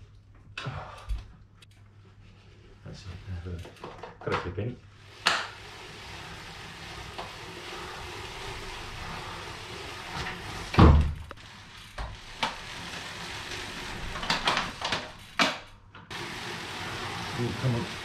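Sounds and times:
bicycle rollers humming: 0:04.8 - 0:18.0.

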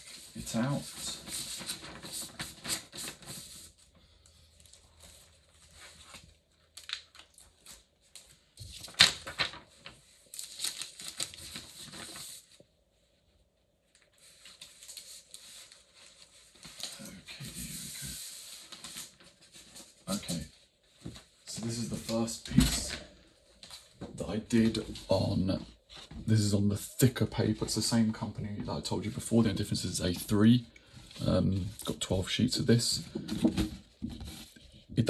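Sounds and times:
paper rustling and crinkling: 0:00.0 - 0:03.8, 0:04.5 - 0:12.6, 0:13.9 - 0:28.2.

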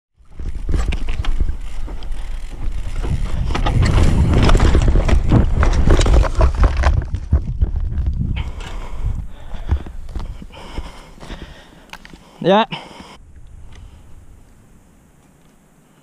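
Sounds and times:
wind buffeting microphone: 0:00.2 - 0:11.7, 0:13.1 - 0:15.1
bicycle rattling over bumps: 0:00.2 - 0:12.2.

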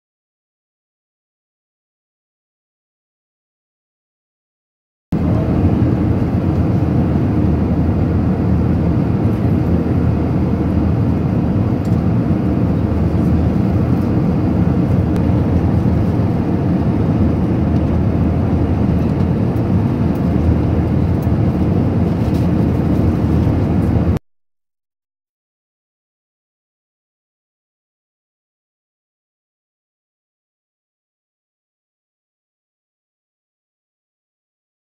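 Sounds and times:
airflow: 0:05.2 - 0:24.2
engine drone: 0:05.2 - 0:24.2
jet aircraft cabin drone: 0:05.2 - 0:24.2.

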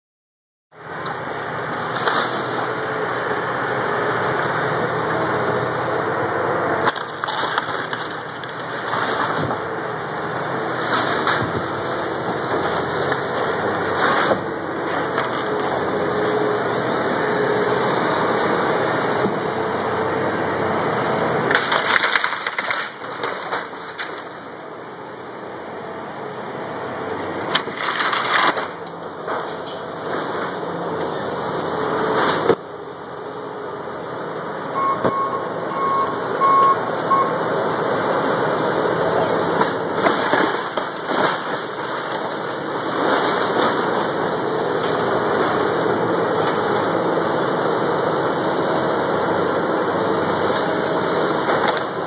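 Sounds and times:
excavator diesel engine running: 0:00.8 - 0:52.0
timber cracking and splintering: 0:06.8 - 0:09.7, 0:21.5 - 0:24.6, 0:27.4 - 0:30.3, 0:39.6 - 0:44.2.

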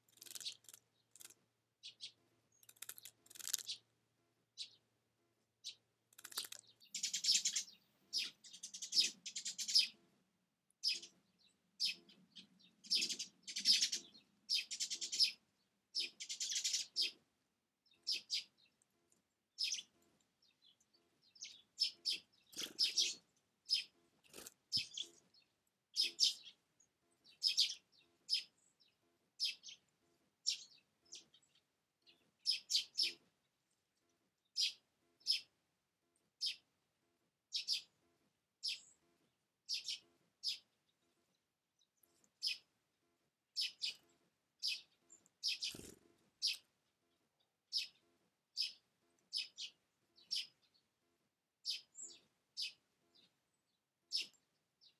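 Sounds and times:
songbirds chirping: 0:00.0 - 0:54.9
buzzy bird calls: 0:00.1 - 0:03.8, 0:06.2 - 0:10.0, 0:12.8 - 0:15.4, 0:16.0 - 0:17.2, 0:21.4 - 0:25.2, 0:44.6 - 0:46.6.

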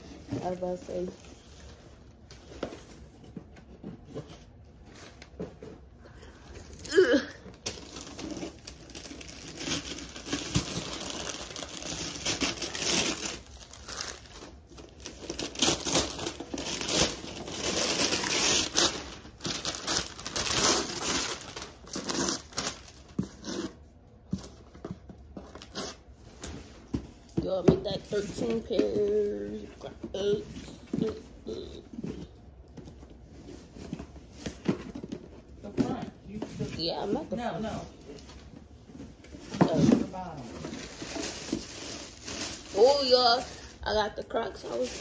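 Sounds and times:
gift wrapping paper crinkling and tearing: 0:06.6 - 0:23.8, 0:39.6 - 0:45.0.

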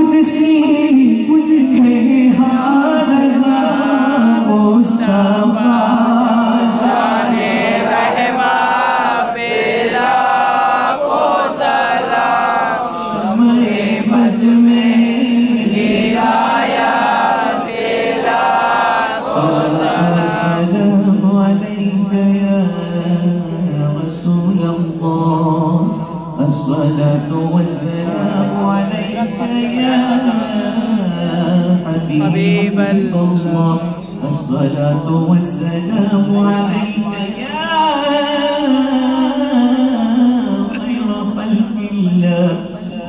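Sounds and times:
man singing into a microphone: 0:00.0 - 0:10.3, 0:11.6 - 0:43.0
men chanting a refrain: 0:05.4 - 0:20.8.

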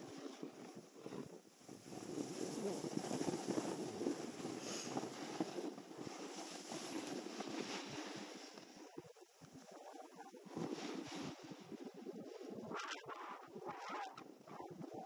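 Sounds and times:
snowboard scraping over snow: 0:00.0 - 0:09.0, 0:09.6 - 0:12.7
wind buffeting microphone: 0:00.2 - 0:15.0.

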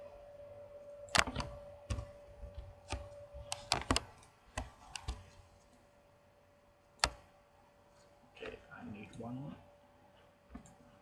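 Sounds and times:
faint steady hum: 0:00.0 - 0:11.0
keyboard and mouse clicks: 0:01.1 - 0:05.4, 0:07.0 - 0:07.2.

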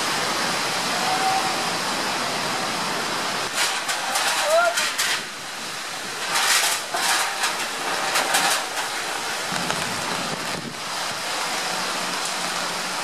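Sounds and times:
wind and rain rushing: 0:00.0 - 0:13.0
wind gusts buffeting microphone: 0:04.9 - 0:11.8.

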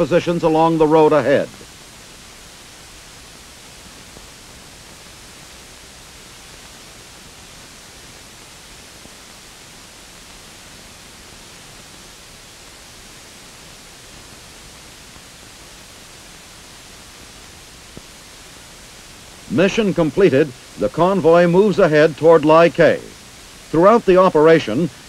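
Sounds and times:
old film soundtrack hiss: 0:00.0 - 0:25.0.

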